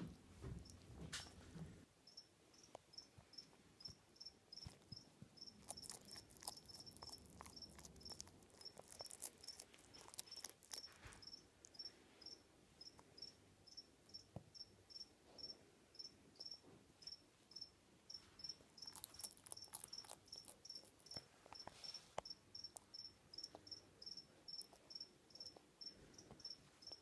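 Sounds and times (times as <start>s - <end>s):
cricket chirping: 2.0s - 27.0s
faint clicks and crackles: 4.6s - 11.8s.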